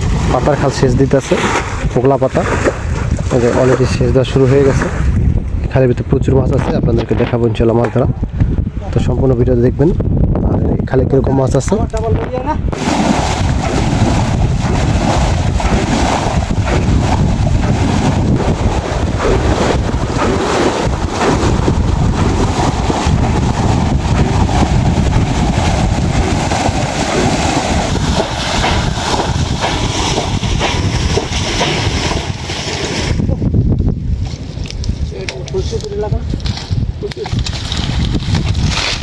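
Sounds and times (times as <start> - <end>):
muddy water splashing and sloshing: 0.0 - 5.4, 12.7 - 33.3, 36.3 - 39.0.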